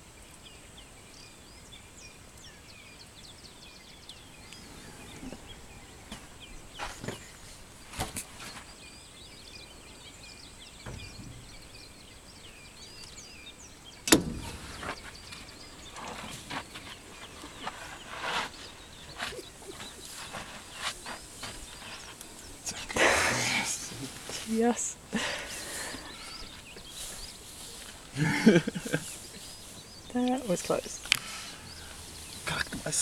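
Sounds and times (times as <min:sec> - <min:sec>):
elephant scraping against vehicle: 0:04.1 - 0:09.6, 0:14.1 - 0:33.0
elephant knocking against vehicle: 0:10.8 - 0:12.0, 0:14.0 - 0:17.4.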